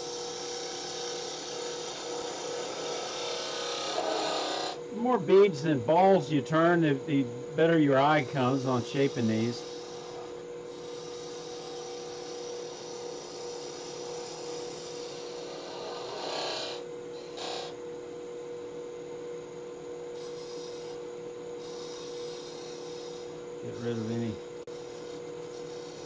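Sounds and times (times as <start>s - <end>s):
wood lathe motor hum: 0.0s - 17.8s, 20.2s - 26.0s
turning tool scraping wood: 7.7s - 17.7s, 21.6s - 26.0s.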